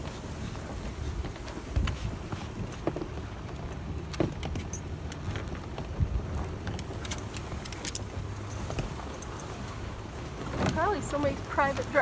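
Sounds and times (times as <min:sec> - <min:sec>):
truck engine and tyre rumble: 0:00.0 - 0:12.0
small rattles and clicks: 0:01.2 - 0:09.6.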